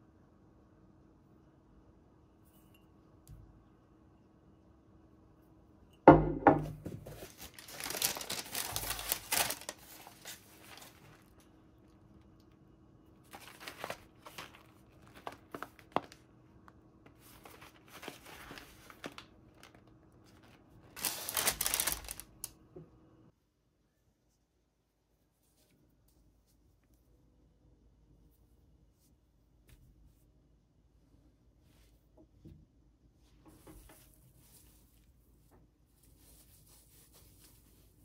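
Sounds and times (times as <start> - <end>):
crinkling and rustling: 6.6 - 12.6, 13.2 - 22.6, 33.2 - 38.0.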